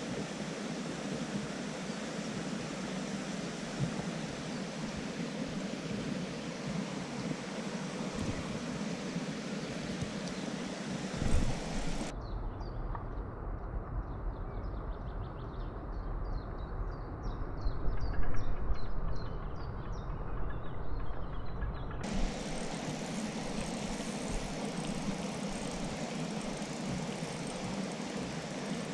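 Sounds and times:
steady rushing noise: 0:00.0 - 0:12.1, 0:22.0 - 0:28.9.

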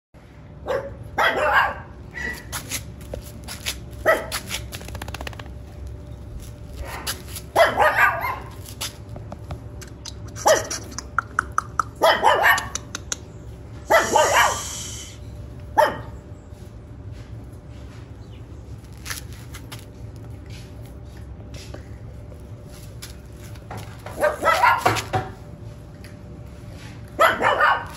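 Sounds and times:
puppy barking: 0:00.6 - 0:02.5, 0:04.0 - 0:04.4, 0:06.8 - 0:08.6, 0:10.3 - 0:13.1, 0:13.8 - 0:14.8, 0:15.8 - 0:16.2, 0:24.1 - 0:25.2, 0:27.2 - 0:27.9.

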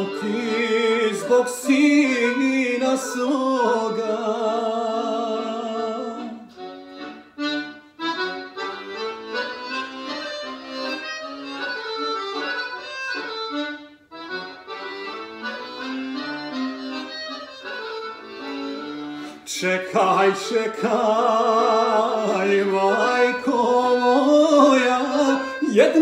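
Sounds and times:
man singing with vibrato: 0:00.0 - 0:06.6, 0:19.3 - 0:26.0
accordion melody: 0:00.0 - 0:26.0.

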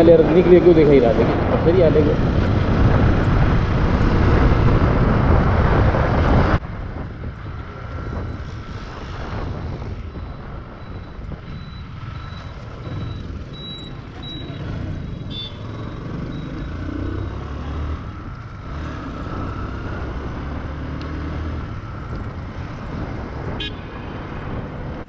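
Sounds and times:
wind rush on microphone: 0:00.3 - 0:13.5, 0:21.4 - 0:25.0
faint high beeping: 0:10.1 - 0:17.5.

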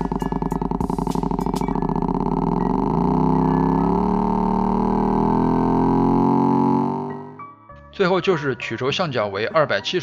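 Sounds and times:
motorcycle engine idling: 0:00.0 - 0:06.0.

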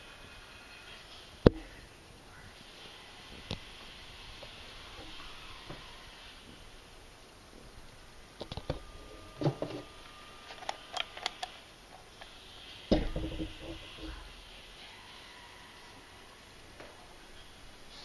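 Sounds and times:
heavy thump: 0:12.9 - 0:14.2.

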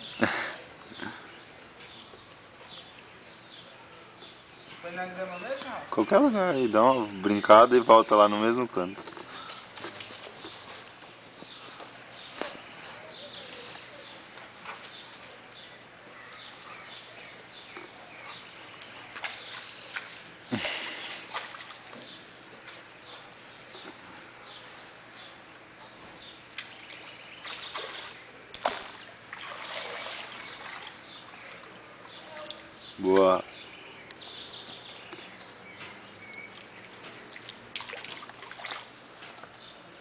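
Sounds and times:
small birds chirping: 0:00.0 - 0:40.0
faint trickle of water: 0:26.5 - 0:32.8, 0:36.2 - 0:39.6.

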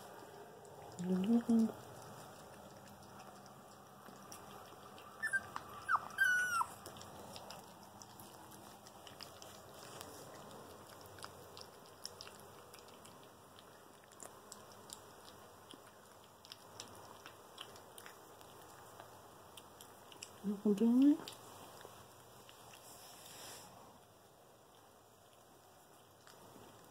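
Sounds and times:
puppy eating wet food: 0:00.0 - 0:26.9
puppy yelping: 0:04.7 - 0:07.6.

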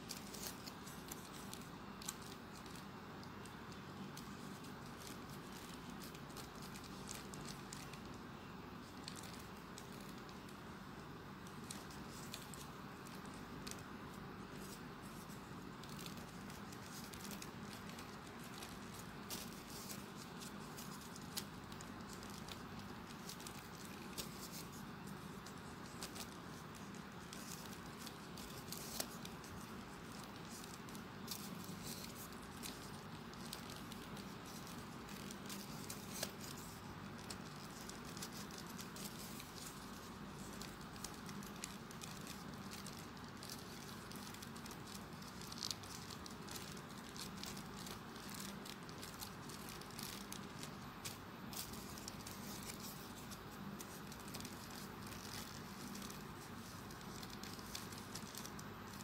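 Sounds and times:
paper rustling and clicking: 0:00.0 - 0:59.0
steady low hiss: 0:00.0 - 0:59.0.

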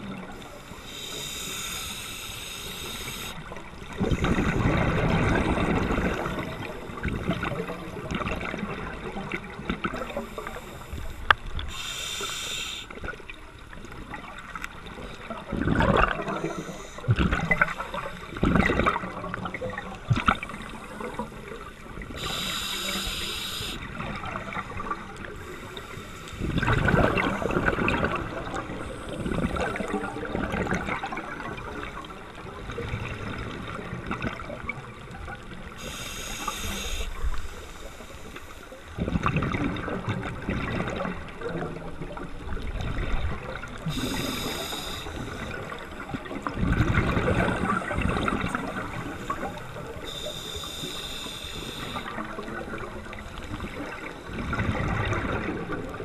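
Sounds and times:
exhaled air bubbling underwater: 0:00.0 - 0:56.0
regulator inhale hiss: 0:00.4 - 0:03.5, 0:10.0 - 0:13.0, 0:16.2 - 0:18.2, 0:20.5 - 0:23.9, 0:24.6 - 0:27.5, 0:35.7 - 0:38.9, 0:43.8 - 0:45.9, 0:48.5 - 0:52.2.

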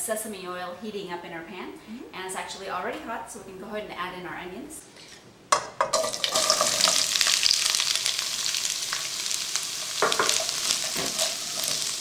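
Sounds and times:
onions sizzling in oil: 0:05.9 - 0:12.0
spatula stirring in pan: 0:10.0 - 0:12.0.

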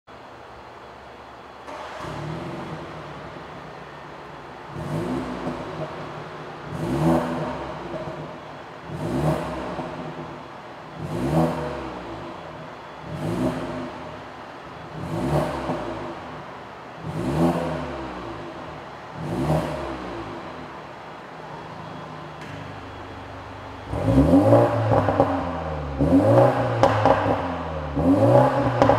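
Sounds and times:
car engine starting and idling: 0:00.1 - 0:28.9
engine revving: 0:01.7 - 0:03.4, 0:04.7 - 0:14.2, 0:14.8 - 0:16.4, 0:17.0 - 0:20.7, 0:23.8 - 0:28.9.

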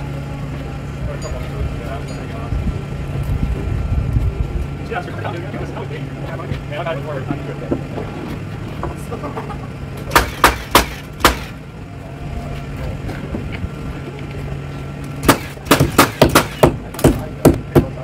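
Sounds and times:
nail gun shots: 0:10.1 - 0:11.6, 0:15.2 - 0:17.9.

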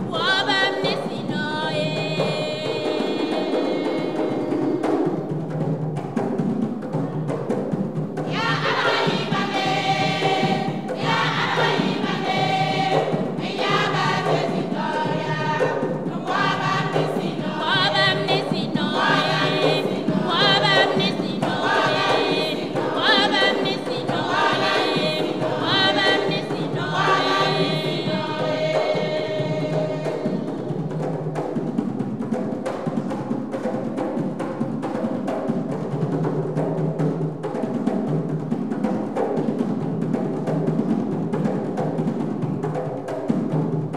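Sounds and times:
women's choir singing gospel: 0:00.0 - 0:05.3, 0:08.2 - 0:31.2
box drum percussion: 0:00.0 - 0:43.9.

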